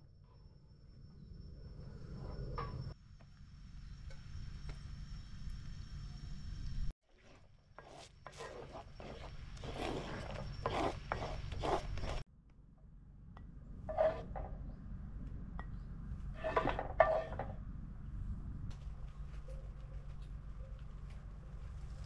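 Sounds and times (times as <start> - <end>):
metal utensil scraping cookware: 13.9 - 14.5, 16.4 - 17.6.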